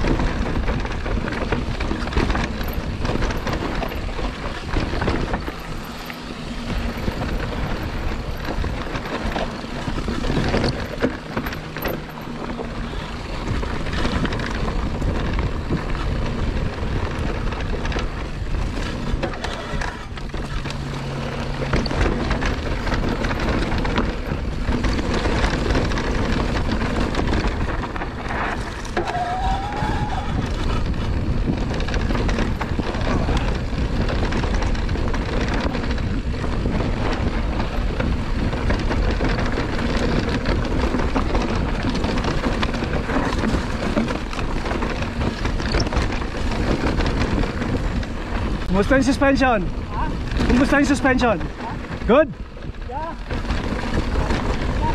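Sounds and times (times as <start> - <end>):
bike rattling over bumps: 0.0 - 54.9
tyres grinding over dirt and rocks: 0.0 - 54.9
wind buffeting microphone: 0.0 - 54.9
short squeal: 29.0 - 30.4.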